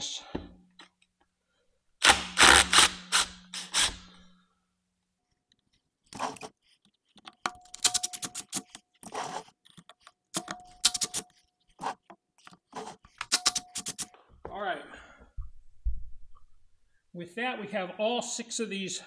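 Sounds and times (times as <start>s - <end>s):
scrapes and handling noises: 5.4s - 14.1s.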